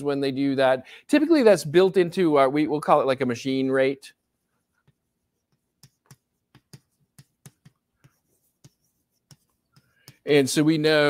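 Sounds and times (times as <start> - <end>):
chalk tapping on a blackboard: 4.1 - 10.5.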